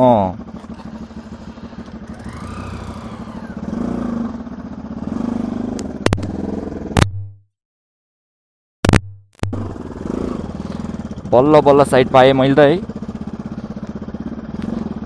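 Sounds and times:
motorcycle engine running: 0.0 - 7.4, 8.9 - 15.0
sharp clicks: 8.9 - 9.6.

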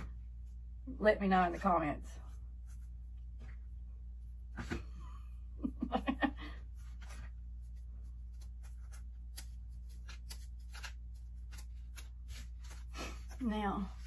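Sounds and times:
hands rustling craft materials: 6.6 - 14.0.

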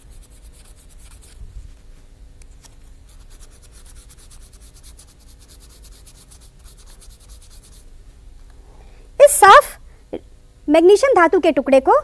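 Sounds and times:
sandpaper rubbing on metal: 0.0 - 1.4, 3.1 - 7.9.

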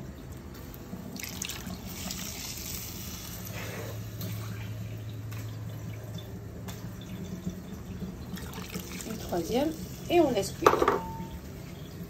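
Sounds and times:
low steady hum: 0.0 - 12.0
steady watery noise: 0.0 - 12.0.

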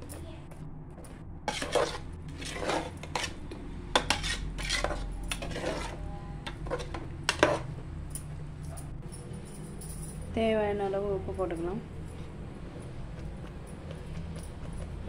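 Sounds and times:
low hum: 0.0 - 15.0
metal ladle scraping a pot: 1.5 - 7.7.

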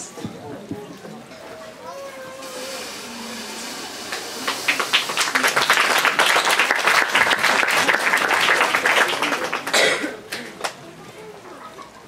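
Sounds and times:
audience applauding: 2.8 - 10.8.

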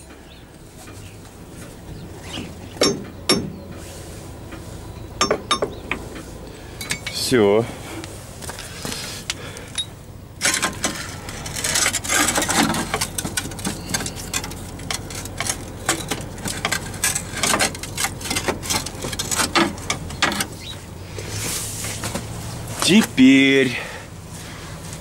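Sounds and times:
steady low hum: 0.0 - 25.0
metal parts clicking and knocking: 6.8 - 7.2, 9.7 - 20.6.

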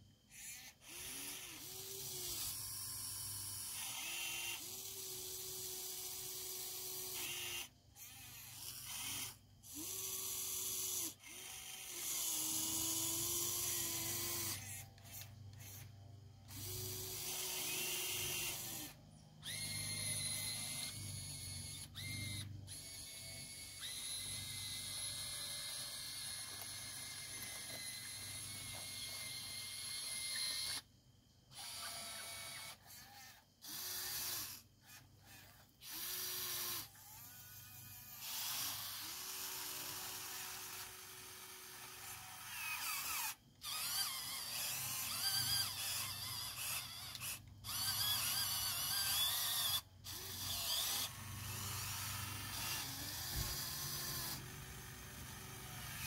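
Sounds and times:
small electric motors whining: 0.0 - 56.0.

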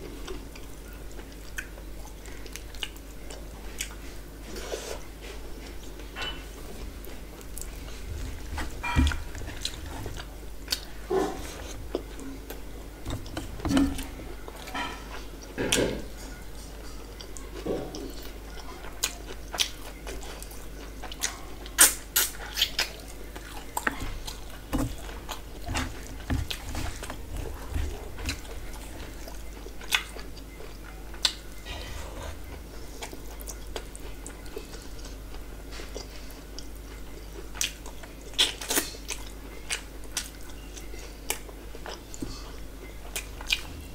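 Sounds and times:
chewing and mouth smacks: 0.6 - 4.0, 17.2 - 31.5, 32.5 - 43.7.

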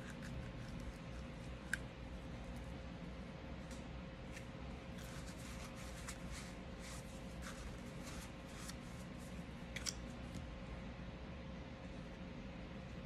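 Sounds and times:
towel rubbing on plastic: 5.0 - 9.3.

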